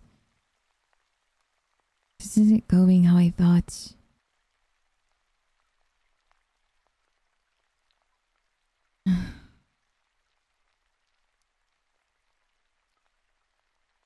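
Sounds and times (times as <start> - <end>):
woman sighing: 9.1 - 9.5.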